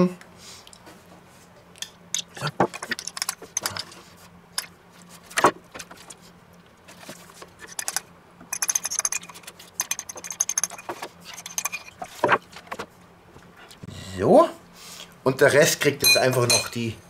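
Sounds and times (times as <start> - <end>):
metal spoon scraping ceramic bowl: 8.6 - 12.1.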